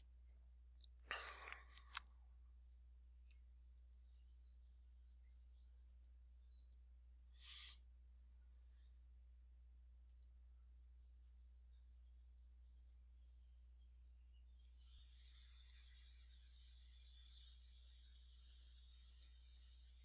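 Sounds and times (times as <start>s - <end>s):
low electrical hum: 0.0s - 20.0s
mouse clicks: 0.8s - 2.1s, 3.2s - 4.1s, 5.8s - 6.8s, 10.0s - 10.4s, 12.7s - 13.0s, 17.1s - 19.8s.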